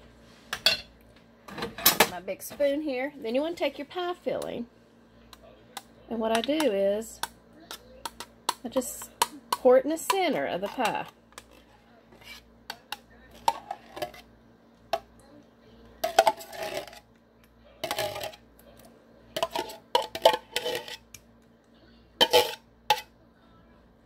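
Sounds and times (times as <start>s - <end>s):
metal spoon scraping tin can: 16.0s - 17.0s, 19.4s - 21.0s, 22.2s - 23.0s.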